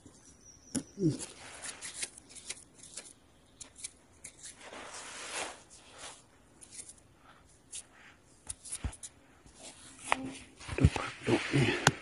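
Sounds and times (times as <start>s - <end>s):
rustling of leaf litter: 4.6s - 6.3s, 10.7s - 11.8s.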